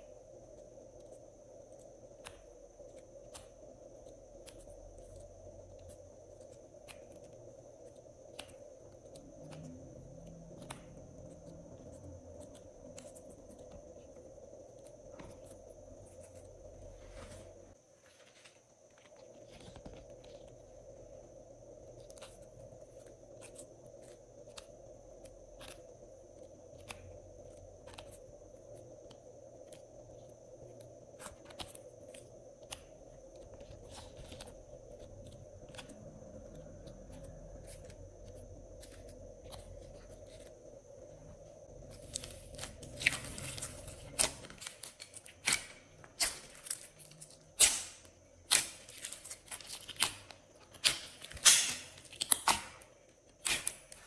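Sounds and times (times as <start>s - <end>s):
faint steady hum: 0.0s - 54.0s
slime popping and squelching: 41.9s - 54.0s.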